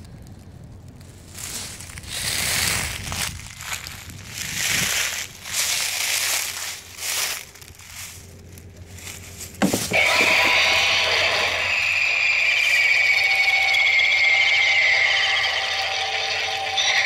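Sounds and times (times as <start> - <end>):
shrill electronic buzz: 9.6 - 17.0.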